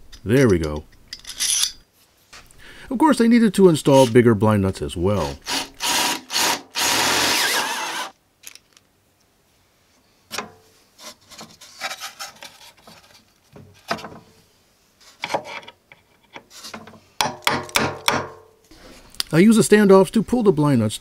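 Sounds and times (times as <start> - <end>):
cordless drill boring wood: 5.4 - 8.1.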